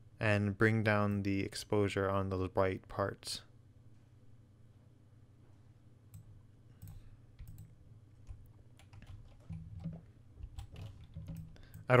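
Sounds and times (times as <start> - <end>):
low steady hum: 0.0 - 12.0
mouse and keyboard clicks: 6.2 - 11.9.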